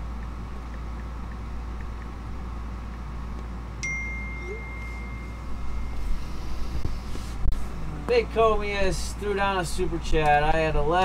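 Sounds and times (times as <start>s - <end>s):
electrical equipment hum: 0.0s - 11.0s
high electronic tone: 3.8s - 6.8s.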